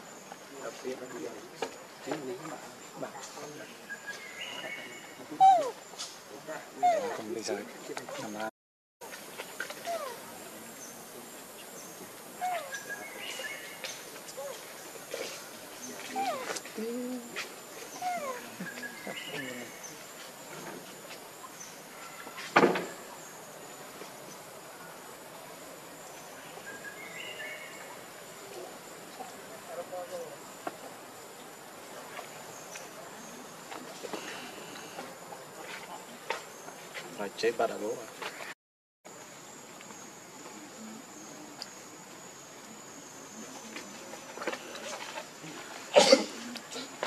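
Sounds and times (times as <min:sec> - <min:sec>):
insects droning: 0:00.0 - 0:38.5, 0:39.1 - 0:47.0
faint outdoor background noise: 0:00.0 - 0:47.0
faint bird chirps: 0:02.0 - 0:08.5, 0:09.6 - 0:20.8.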